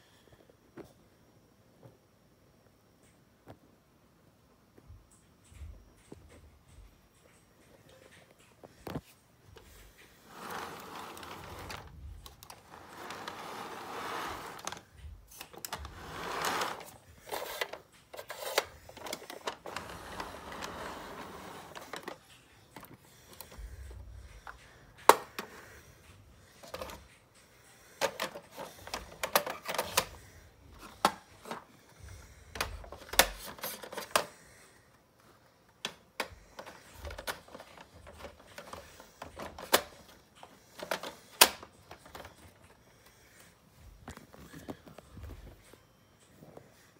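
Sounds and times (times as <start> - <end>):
plastic toy train rustling: 10.2 - 23.5, 32.6 - 34.4, 36.6 - 42.6.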